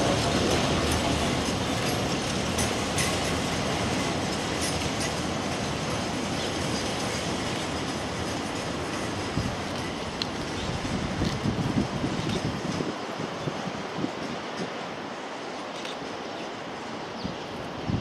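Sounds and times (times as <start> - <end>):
freight train wheels rumbling on rail: 0.0 - 18.0.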